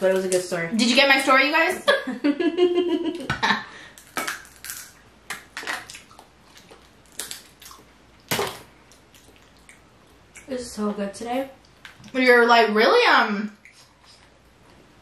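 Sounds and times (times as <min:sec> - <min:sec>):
shells cracking and crunching: 0:03.9 - 0:09.4.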